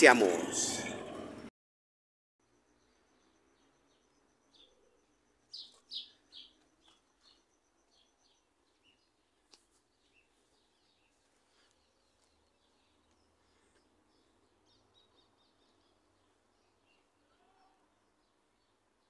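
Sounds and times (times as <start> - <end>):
small birds chirping: 2.4 - 19.0.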